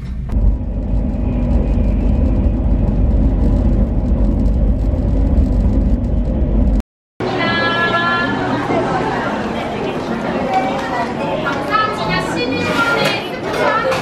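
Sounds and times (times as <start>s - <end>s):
train rumble inside carriage: 0.0s - 6.8s.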